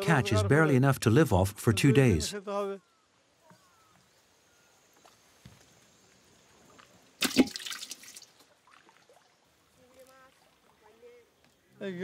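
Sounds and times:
water splashing: 6.6 - 11.4
running and dripping water: 7.2 - 11.4.

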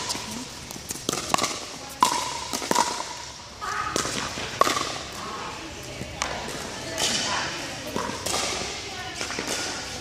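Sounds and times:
paddles hitting plastic ball: 0.0 - 3.3, 3.9 - 5.2, 7.9 - 10.0.

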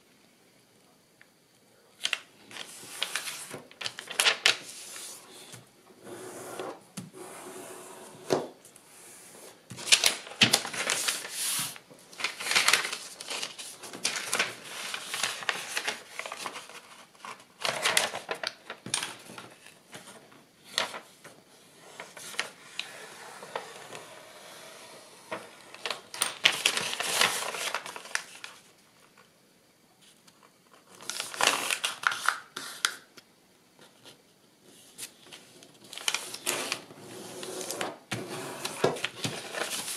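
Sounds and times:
paper rustling and crinkling: 2.0 - 5.7, 9.7 - 24.5, 25.1 - 29.2, 30.3 - 33.0, 34.8 - 39.9.

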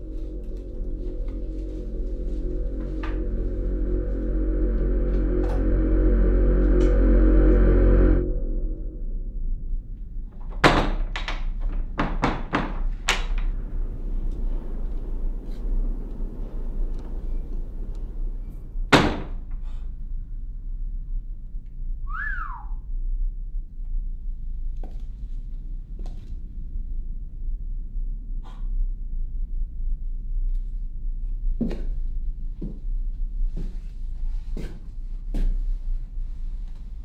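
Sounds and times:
steady low rumble: 0.0 - 22.1, 22.8 - 37.0
whistle-like tone: 22.0 - 22.8.

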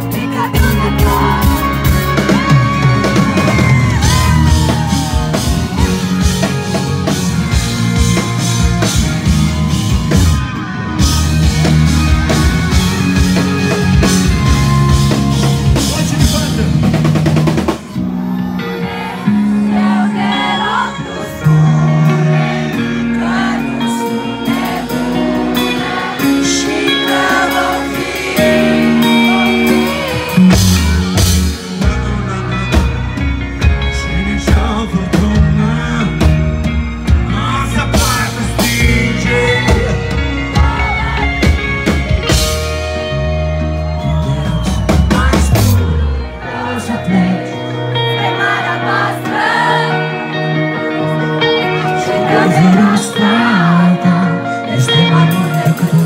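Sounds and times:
person singing: 0.0 - 7.2, 18.0 - 41.7, 44.0 - 56.0
drum kit beat: 0.0 - 18.3, 21.5 - 46.0
electric guitar: 0.0 - 56.0.

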